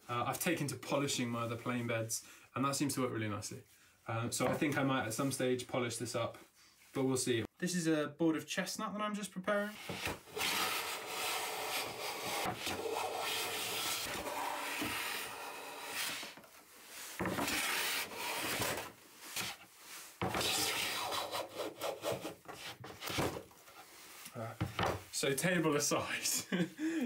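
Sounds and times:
hand plane shaving wood: 9.9s - 16.4s, 17.2s - 19.6s, 20.2s - 23.2s.

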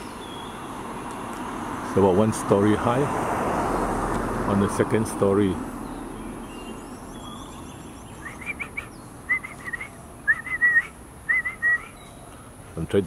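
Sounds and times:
person whistling bird call: 8.2s - 12.0s.

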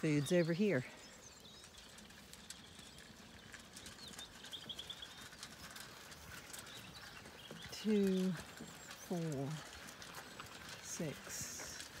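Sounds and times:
bird trill: 0.0s - 5.9s
sheep crunching feed: 0.0s - 12.0s.

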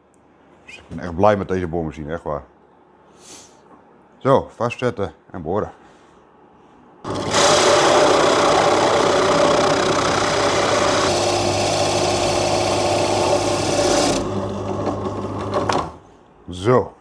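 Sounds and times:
circle cutter cutting a hole: 7.1s - 16.0s
drill press motor running: 7.1s - 16.0s.

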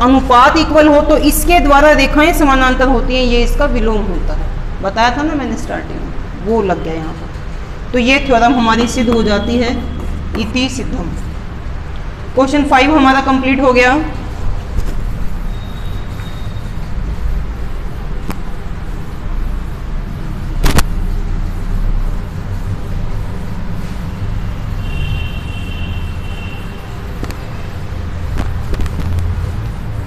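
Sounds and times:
duster rubbing on chalkboard: 13.0s - 30.0s.

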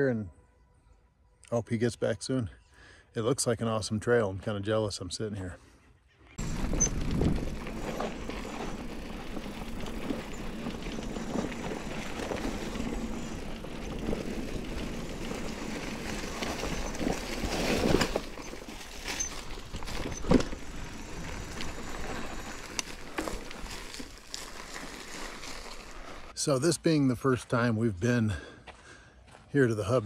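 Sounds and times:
bike tyres rumbling on rocky trail: 6.4s - 26.4s.

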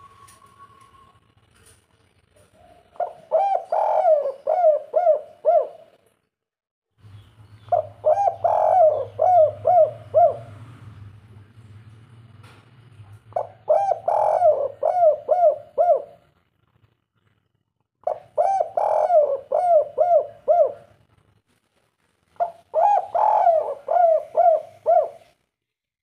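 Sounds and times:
dove cooing: 2.5s - 6.0s, 7.7s - 10.6s, 13.3s - 16.3s, 18.0s - 21.0s, 22.4s - 25.4s.

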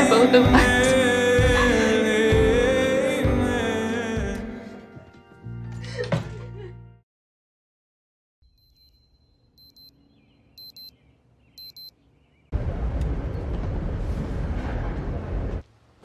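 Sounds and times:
short beeps: 8.5s - 10.0s, 10.6s - 11.0s, 11.6s - 11.9s.

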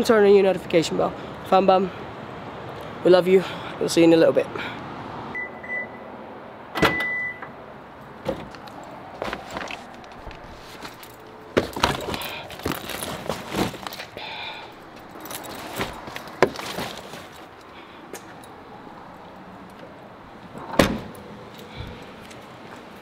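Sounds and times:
bags clinking and knocking: 9.2s - 14.1s, 15.2s - 17.4s
car trunk lid thump: 20.7s - 21.1s.

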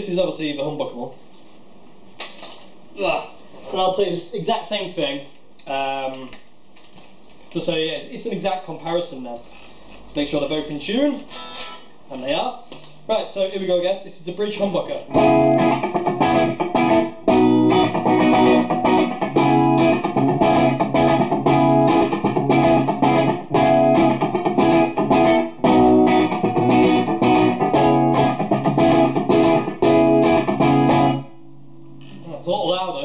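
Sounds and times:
electric guitar chord riff: 15.1s - 31.8s.

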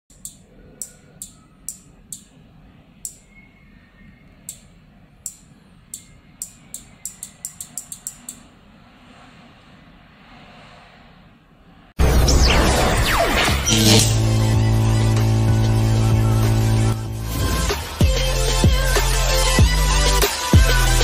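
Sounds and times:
relay clicking: 0.1s - 2.4s, 4.4s - 8.5s
low hum: 0.2s - 19.9s.

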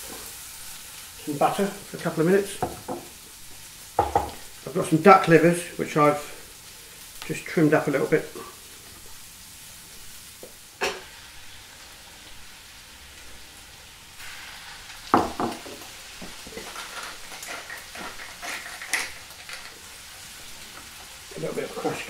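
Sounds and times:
livers sizzling in butter: 0.0s - 22.0s
loud knock: 15.2s - 15.6s.

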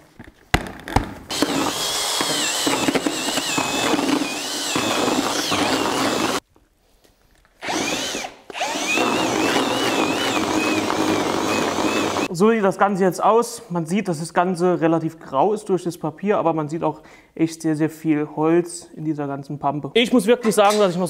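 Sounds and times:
power drill mixing pulp: 1.3s - 6.4s, 7.6s - 12.3s.

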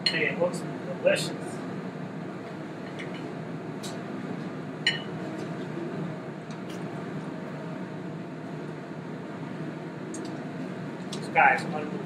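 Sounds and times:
kitchen ventilation hum: 0.0s - 12.0s
metal fork clinking on plate: 4.9s - 5.1s.

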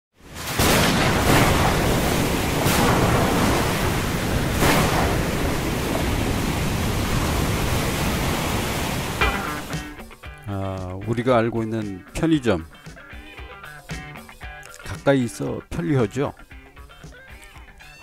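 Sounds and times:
stormy wind and surf: 0.2s - 10.0s.

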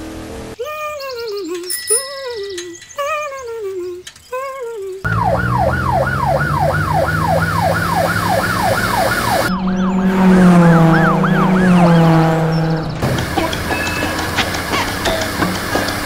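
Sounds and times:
police siren: 5.0s - 14.5s
low steady drone: 5.2s - 14.4s.

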